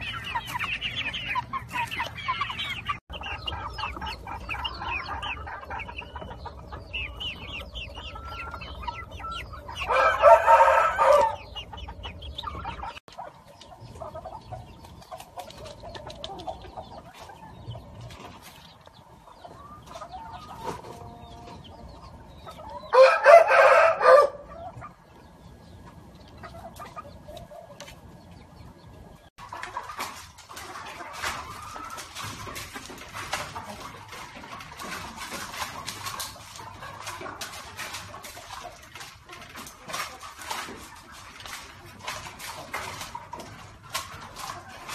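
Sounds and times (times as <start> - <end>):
chickens clucking and chirping: 0.0 - 44.9
rooster crowing: 9.9 - 11.4, 22.9 - 24.5.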